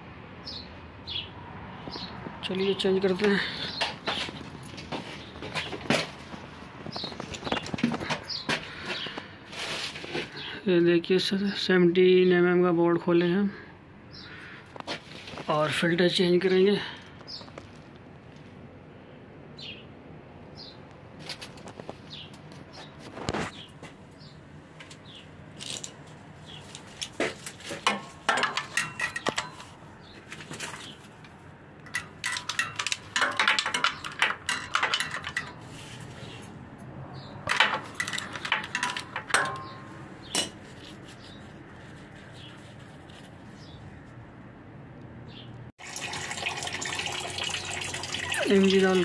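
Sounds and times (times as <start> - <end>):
oil pouring in a stream: 45.8 - 49.0.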